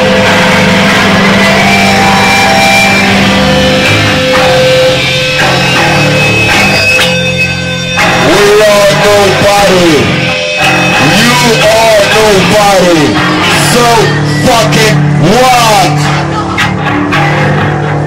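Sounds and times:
distorted electric guitars: 0.0 - 18.0
drums: 0.0 - 18.0.

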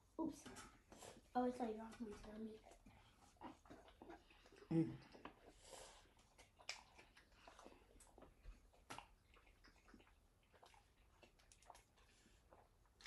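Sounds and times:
faint chewing: 0.3 - 13.0
soft mouth clicks: 6.3 - 7.2.

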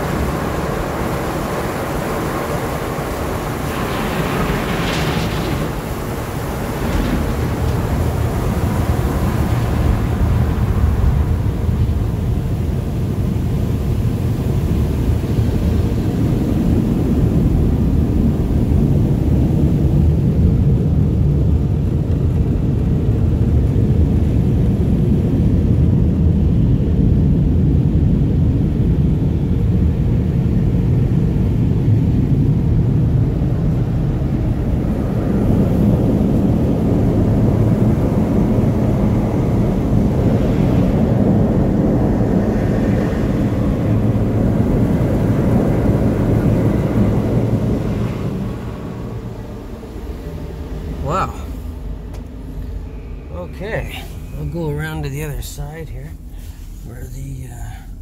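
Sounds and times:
water spraying on van: 0.0 - 25.2
car wash dryer blowers: 0.0 - 58.0.

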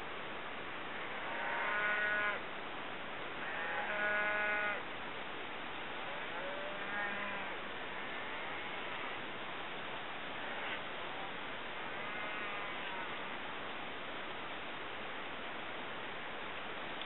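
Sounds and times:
steady hiss: 0.0 - 17.0
cows mooing: 6.1 - 9.1.

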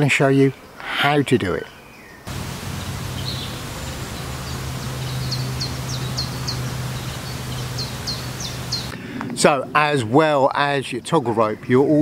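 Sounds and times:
steady low hum: 2.3 - 9.0.

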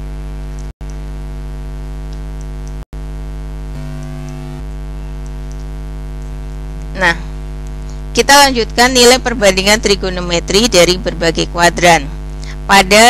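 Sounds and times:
electrical mains hum: 0.0 - 13.0.

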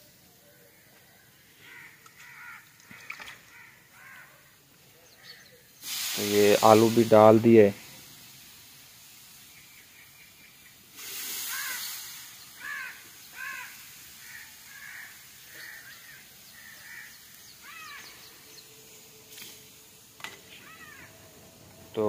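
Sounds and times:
crow cawing: 1.6 - 4.6, 11.4 - 18.3, 20.5 - 21.2
burst of hiss: 5.6 - 22.0.

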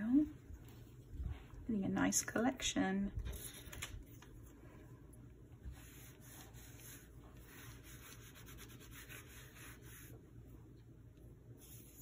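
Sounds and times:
paper towel rubbing paper: 5.7 - 10.2, 11.6 - 12.0.

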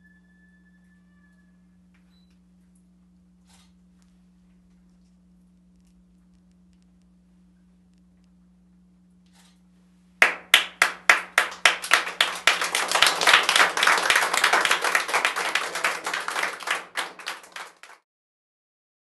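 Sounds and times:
audience applauding: 10.2 - 18.0.

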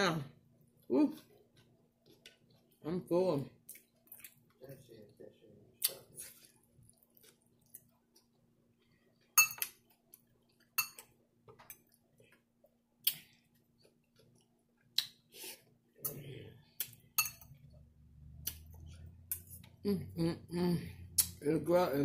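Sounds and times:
quiet chewing: 0.7 - 2.8, 3.6 - 17.8
fork clinking on glass bowl: 9.4 - 9.7, 10.8 - 11.1, 17.2 - 17.5.

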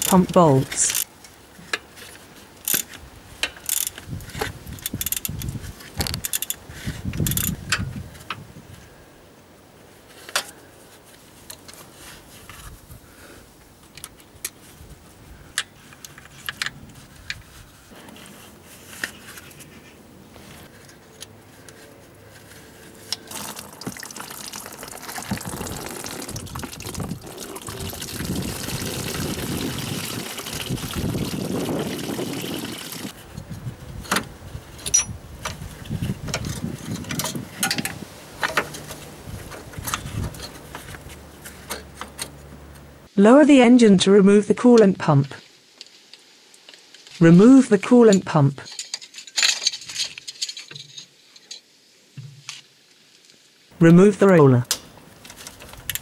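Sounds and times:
coolant trickling into metal pan: 23.2 - 33.1
hand tools clinking on metal: 34.8 - 35.2, 48.6 - 51.6.

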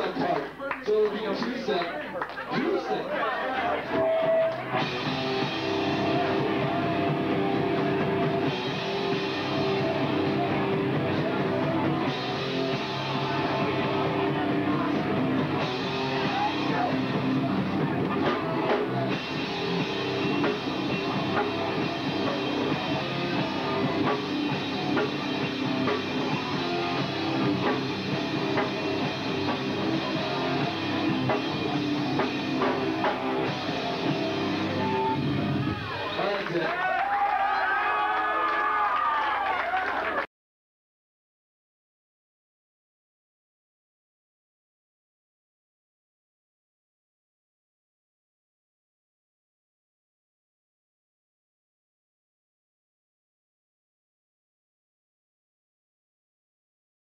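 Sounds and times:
drum kit: 3.8 - 36.6
distorted electric guitars: 3.8 - 36.7.

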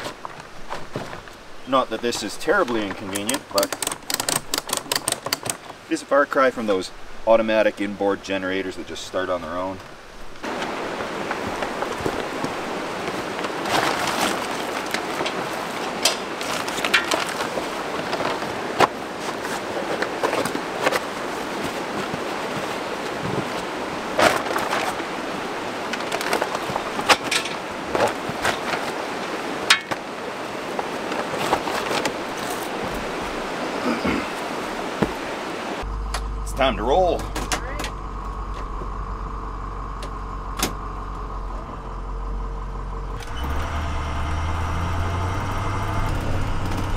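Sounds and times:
tarp rustling: 0.0 - 6.0, 9.6 - 35.9
water noise: 0.0 - 46.9.

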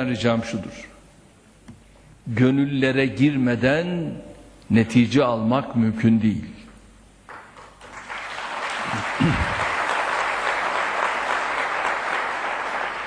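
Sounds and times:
audience applauding: 7.3 - 13.0.

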